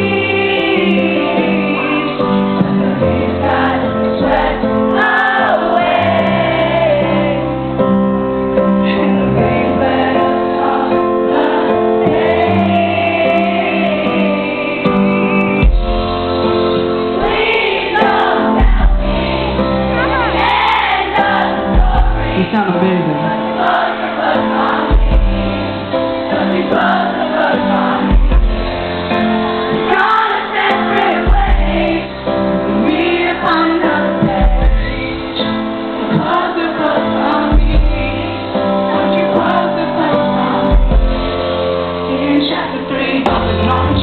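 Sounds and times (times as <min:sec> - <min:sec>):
pop-rock band playing live: 0:00.0 - 0:44.0
man singing: 0:22.3 - 0:23.4.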